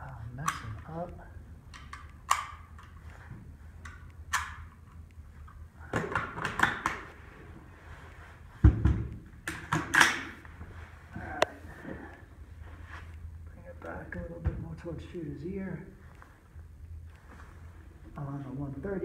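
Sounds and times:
rifle metallic clicks: 1.7s - 3.1s.

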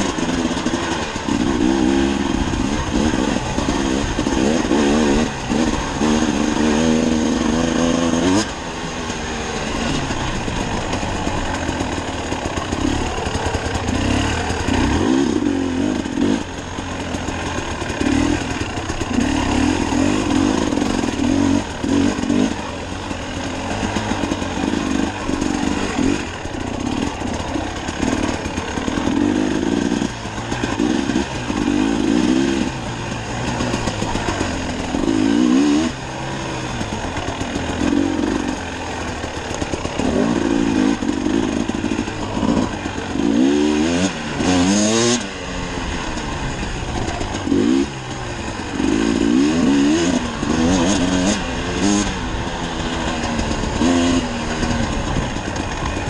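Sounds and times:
dirt bike engine revving: 0.0s - 56.0s.

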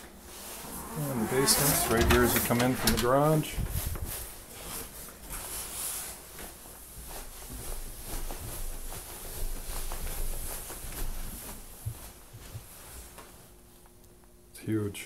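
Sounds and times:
footsteps going down stairs: 1.8s - 13.4s.

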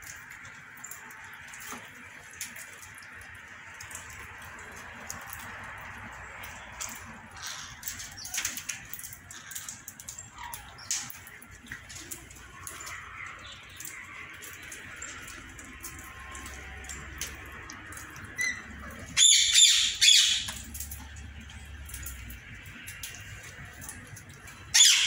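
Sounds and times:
parakeets chirping and clicking: 0.0s - 25.0s
parakeet harsh squawk: 19.2s - 20.5s, 24.7s - 25.0s.

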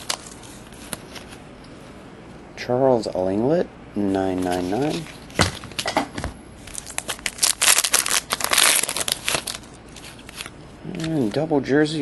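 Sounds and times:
trading cards flipping and sliding: 0.0s - 1.9s, 4.0s - 6.0s, 6.6s - 11.4s.

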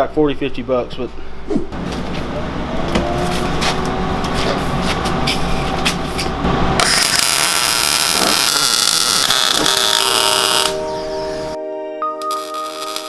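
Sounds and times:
low hum: 1.1s - 11.6s
welding arc crackling and hissing: 6.8s - 10.8s, 12.2s - 13.0s.

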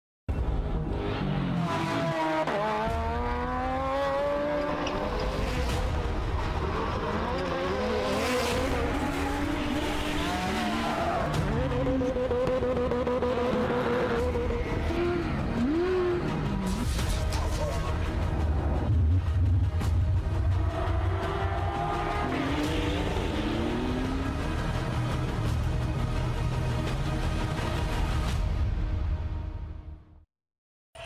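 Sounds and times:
engines revving hard: 1.2s - 17.4s, 20.2s - 25.4s.

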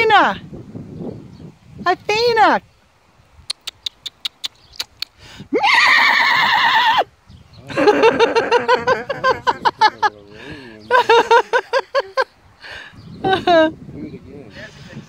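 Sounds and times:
quick clicks: 3.4s - 5.2s
horses whinnying: 5.5s - 7.1s.

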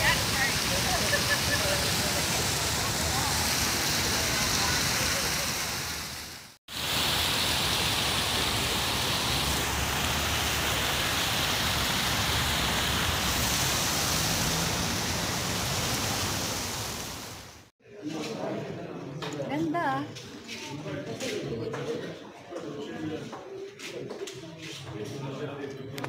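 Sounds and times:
fountain jets splashing into pool: 0.0s - 17.7s.

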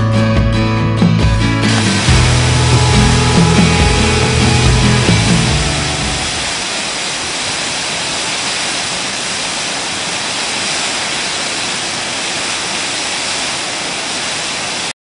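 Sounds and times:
waterfall rushing: 1.6s - 14.9s.

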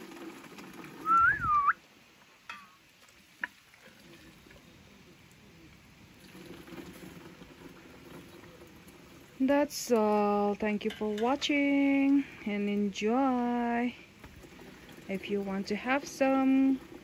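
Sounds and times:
liquid pouring into plastic can: 0.0s - 1.2s, 3.0s - 4.7s, 6.1s - 9.5s, 14.2s - 17.0s.

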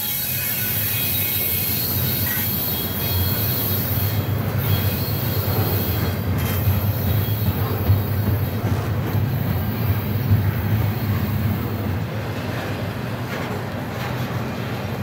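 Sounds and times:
high wheel squeal: 0.0s - 8.2s
train wheels rumbling on rails: 0.0s - 15.0s.

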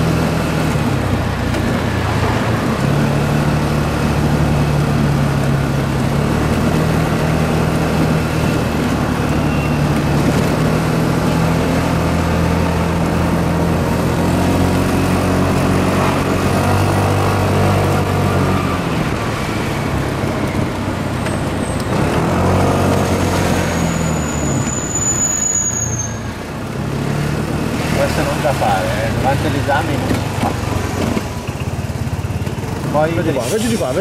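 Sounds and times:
scooter engine revving: 0.0s - 24.6s, 26.2s - 33.4s
city traffic: 0.0s - 34.0s
thin high squeal: 23.6s - 26.4s.

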